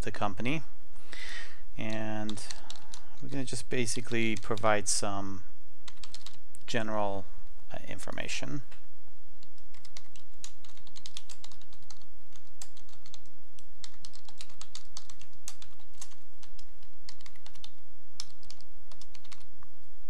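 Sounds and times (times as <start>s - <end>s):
computer keyboard typing: 1.8s - 4.8s, 5.9s - 6.4s, 9.4s - 19.5s.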